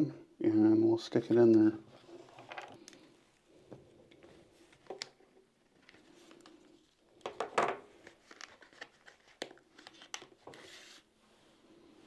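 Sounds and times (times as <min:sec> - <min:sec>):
package rustling and tearing: 0:07.9 - 0:10.5.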